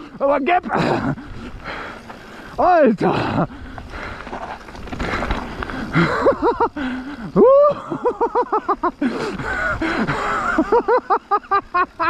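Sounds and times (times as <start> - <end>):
rushing trail noise: 0.0 - 12.0
person laughing: 0.7 - 1.3, 5.9 - 12.0.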